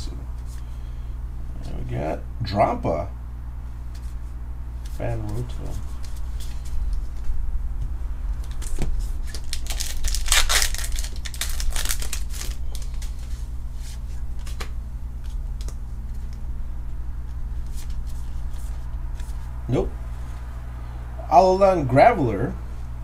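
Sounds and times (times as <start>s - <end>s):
steady low hum: 0.0s - 23.0s
foil wrapper tearing and crinkling: 8.5s - 13.3s.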